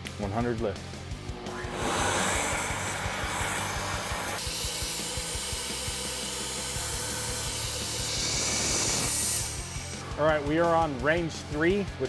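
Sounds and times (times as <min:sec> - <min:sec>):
flow bench air rushing: 0:01.3 - 0:07.6.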